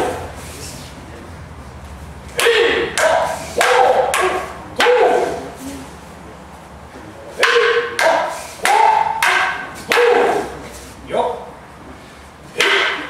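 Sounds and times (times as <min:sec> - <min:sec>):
wooden swords clacking: 0:02.3 - 0:05.6, 0:07.4 - 0:10.7, 0:12.5 - 0:13.0
person shouting: 0:02.4 - 0:03.0.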